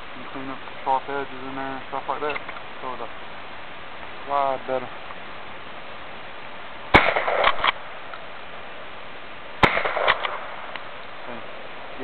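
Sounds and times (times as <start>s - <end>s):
shotgun shots with echo: 6.9s - 7.8s, 9.6s - 10.7s.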